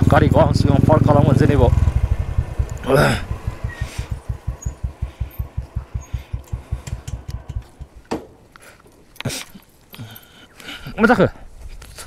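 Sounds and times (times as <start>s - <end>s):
motorcycle engine idling: 0.0s - 8.1s
sharp clicks: 1.8s - 8.2s.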